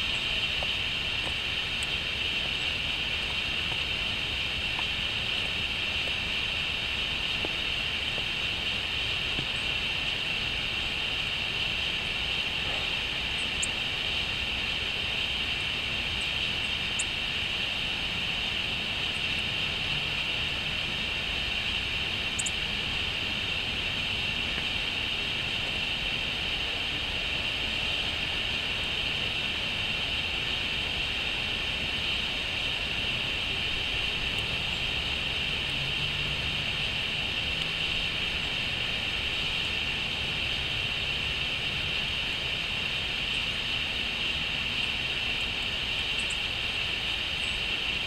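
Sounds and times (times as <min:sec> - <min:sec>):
steady hiss: 0:00.0 - 0:48.0
bird chirps: 0:22.4 - 0:22.6, 0:46.2 - 0:46.4.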